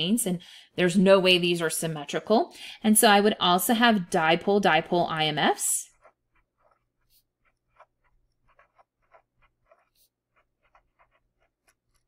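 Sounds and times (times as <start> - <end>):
pen writing on paper: 5.9 - 12.0.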